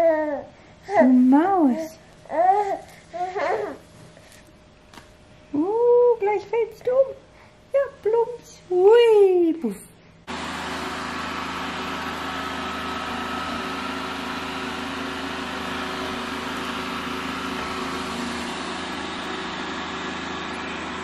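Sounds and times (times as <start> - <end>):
robot vacuum running: 10.3 - 21.0.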